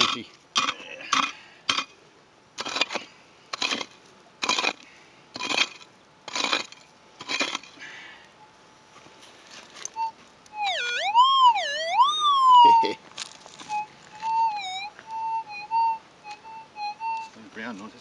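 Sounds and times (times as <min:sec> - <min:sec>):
pick striking gravelly soil: 0:00.0 - 0:02.0, 0:02.6 - 0:08.2.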